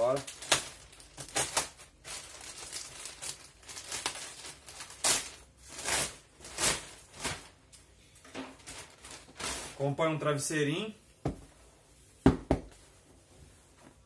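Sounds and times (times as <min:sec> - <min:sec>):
plastic bag crinkling and tearing: 0:00.0 - 0:07.7, 0:08.6 - 0:09.8.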